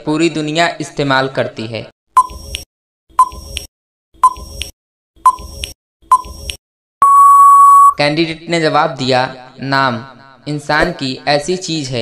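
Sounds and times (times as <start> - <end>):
short countdown beeps: 7.0 - 8.0.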